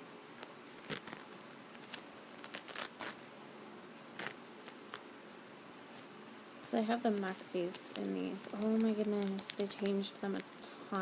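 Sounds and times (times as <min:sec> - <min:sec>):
plastic wrapper crinkling and tearing: 0:00.4 - 0:03.2, 0:07.1 - 0:10.7.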